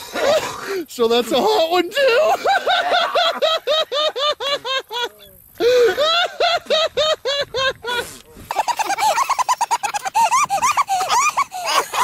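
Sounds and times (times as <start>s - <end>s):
high-pitched rapid laughter: 5.8s - 12.0s.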